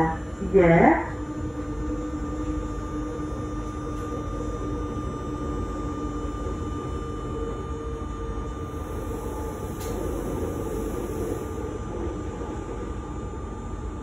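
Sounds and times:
train wheels rumbling on rail: 8.2 - 14.0.

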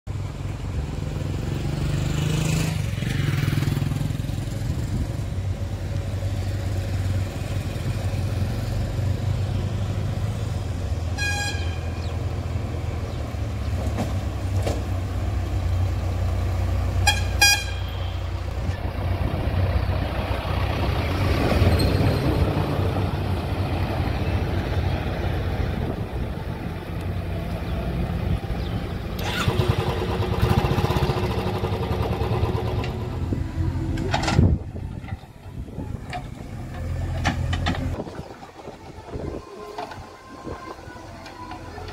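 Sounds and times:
diesel engine running: 0.1 - 41.9
vehicle horn toots: 11.1 - 12.1, 17.0 - 18.3.

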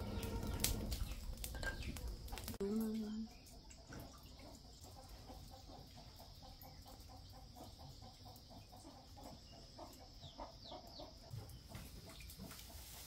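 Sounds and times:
chicken clucking: 4.4 - 11.5.

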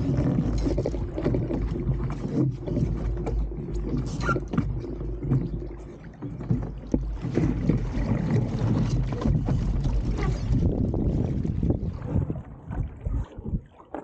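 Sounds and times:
water rushing and slapping hull: 0.0 - 14.0
wind buffeting microphone: 6.7 - 13.7.

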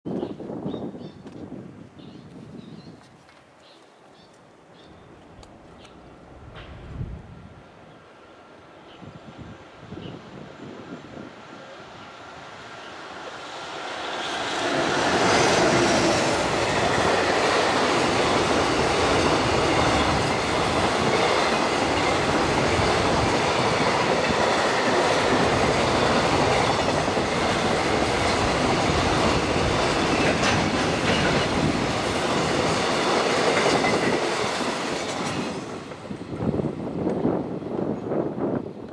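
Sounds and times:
freight train passing: 5.1 - 38.9
wheels clicking over rail joints: 14.8 - 36.1.

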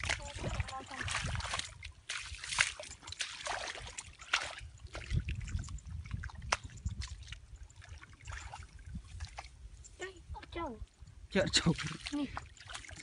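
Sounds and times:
hands splashing in muddy water: 0.0 - 9.5.

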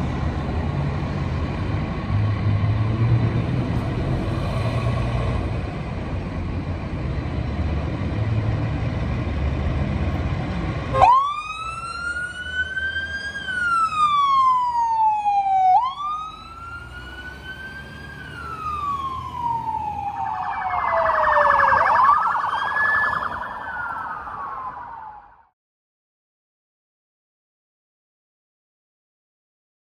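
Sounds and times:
fire engine engine running: 5.2 - 25.3
wailing siren: 10.9 - 25.5
fast pulsing siren: 11.0 - 25.5.

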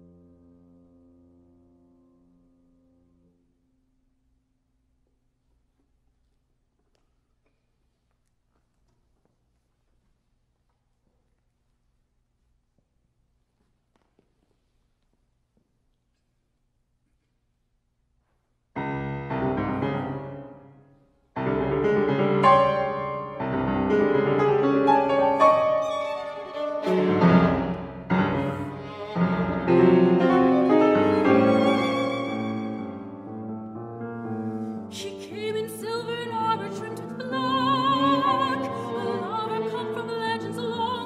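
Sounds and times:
violin and piano playing: 22.3 - 41.0
soprano singing with vibrato: 35.0 - 41.0.

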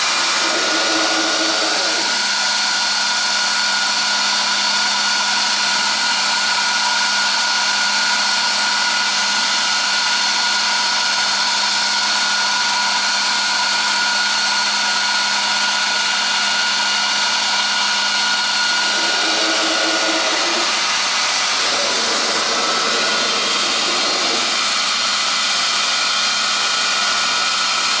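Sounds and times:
router spindle high-pitched whine: 0.0 - 28.0
fainter lower sound: 18.7 - 24.9.

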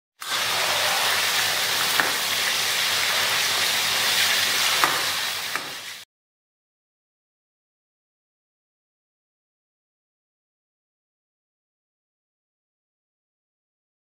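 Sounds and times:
chicken sizzling in oil: 0.2 - 6.1.

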